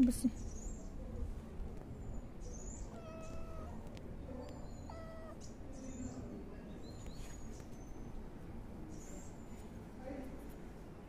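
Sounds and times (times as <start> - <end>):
small birds chirping: 0.0 - 9.9
steady outdoor rumble: 0.0 - 11.0
kitten mewing: 2.8 - 3.9, 4.6 - 5.5.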